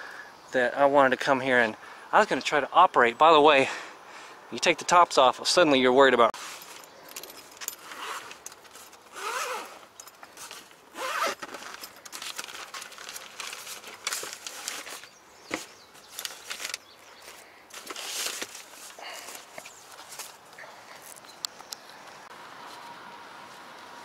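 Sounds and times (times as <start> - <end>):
gear being handled: 6.4 - 21.2
zippers pulled open: 7.5 - 12.8.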